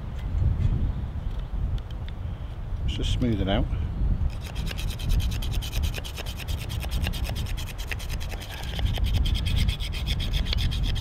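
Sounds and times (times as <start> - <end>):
knife scraping wooden stick: 4.3 - 11.0.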